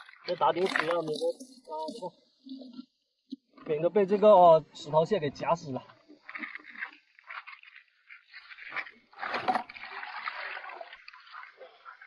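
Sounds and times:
water pouring into plastic bucket: 0:06.3 - 0:12.0.

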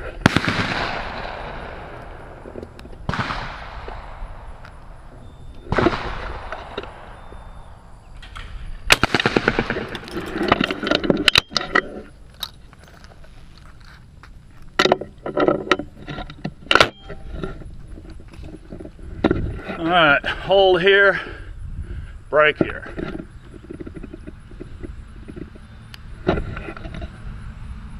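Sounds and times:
shotgun shots: 0:00.2 - 0:04.6, 0:05.7 - 0:07.6, 0:08.3 - 0:10.0
gun handling clicks and knocks: 0:08.2 - 0:19.4, 0:22.6 - 0:27.1.

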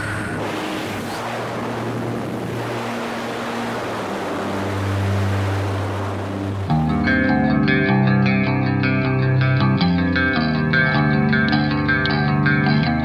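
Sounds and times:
wind rushing: 0:00.0 - 0:07.3
plane engine and propeller droning: 0:00.0 - 0:12.2
guitar music: 0:01.8 - 0:13.0.

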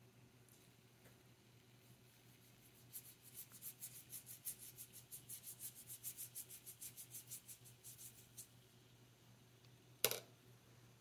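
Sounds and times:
paintbrush scratching on paper: 0:01.9 - 0:08.6.

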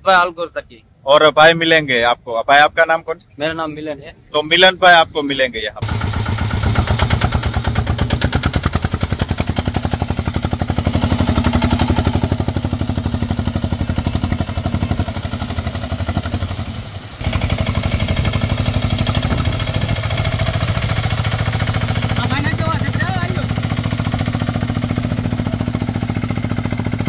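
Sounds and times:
tractor diesel engine under load: 0:05.8 - 0:27.0.

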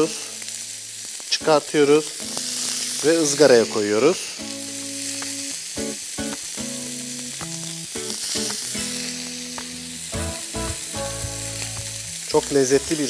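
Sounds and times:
food sizzling in a grill pan: 0:00.0 - 0:13.0
background music with held notes: 0:04.4 - 0:13.0.

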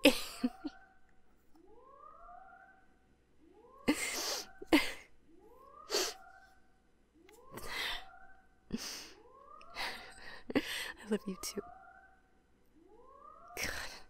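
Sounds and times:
whooping alarm: 0:00.0 - 0:14.0
woman sobbing and sniffling: 0:03.9 - 0:05.2, 0:05.9 - 0:06.3, 0:07.6 - 0:08.1, 0:08.7 - 0:11.3.

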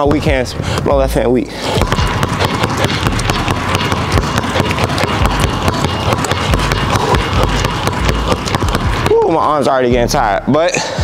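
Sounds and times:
basketballs bouncing on wooden floor: 0:01.6 - 0:09.7.

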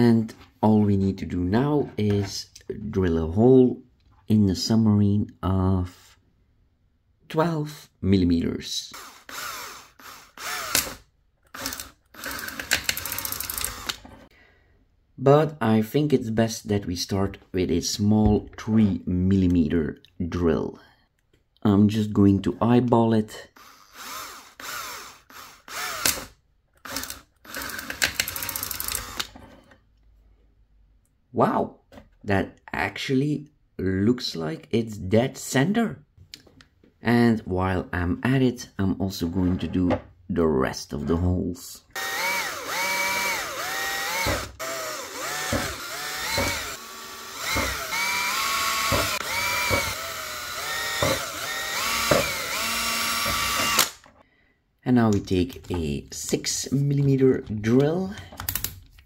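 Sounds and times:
cordless drill whining: 0:08.9 - 0:14.0, 0:23.6 - 0:29.4, 0:42.0 - 0:54.1.

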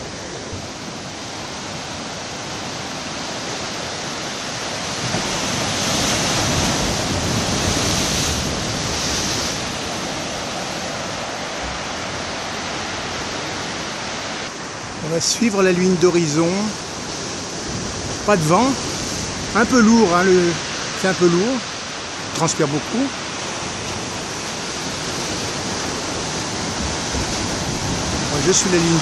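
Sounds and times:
surf breaking on rocks: 0:00.0 - 0:14.3, 0:22.9 - 0:29.0
wave crashing: 0:00.0 - 0:29.0.

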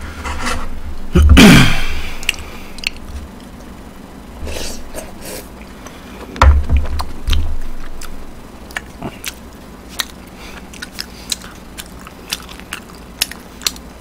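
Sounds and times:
chewing and mouth noises: 0:02.2 - 0:03.8, 0:07.0 - 0:14.0.

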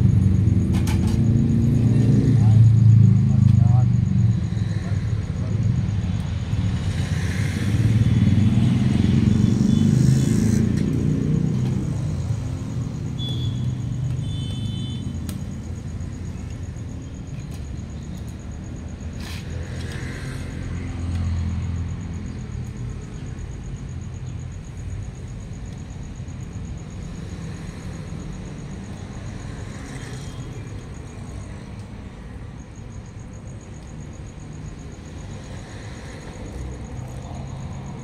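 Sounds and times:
engine running with low hum: 0:00.0 - 0:18.4.

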